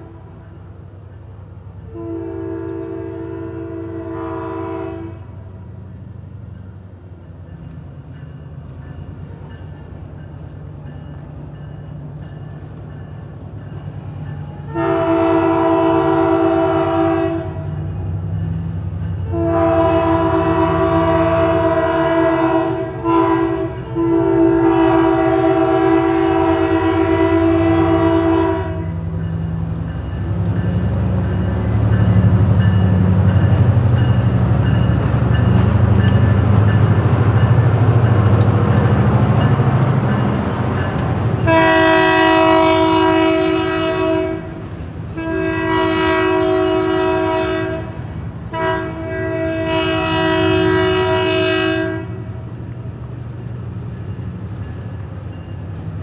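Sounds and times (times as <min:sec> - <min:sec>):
locomotive horn blowing: 0:00.0 - 0:00.6, 0:01.8 - 0:05.7, 0:14.6 - 0:18.0, 0:19.2 - 0:29.1, 0:41.4 - 0:52.4
wheels clicking on rails: 0:28.8 - 0:41.9.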